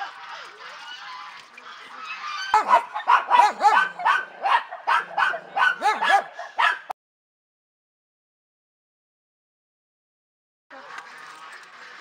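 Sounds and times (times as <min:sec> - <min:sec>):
small dog barking: 0:02.5 - 0:06.9.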